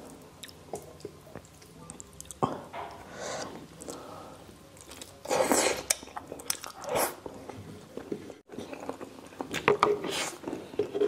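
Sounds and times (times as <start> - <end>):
chewing food: 4.7 - 11.0.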